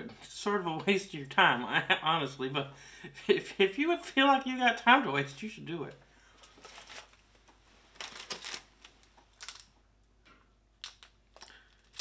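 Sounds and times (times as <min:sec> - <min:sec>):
plastic wrapper rustling: 0:06.3 - 0:09.8, 0:10.8 - 0:12.0.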